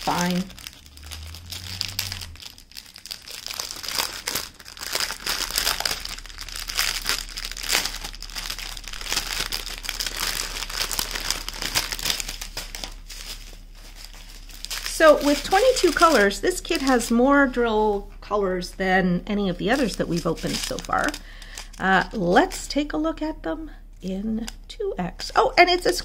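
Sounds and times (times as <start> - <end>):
plastic packaging crinkling: 0.0 - 18.1, 19.5 - 22.7.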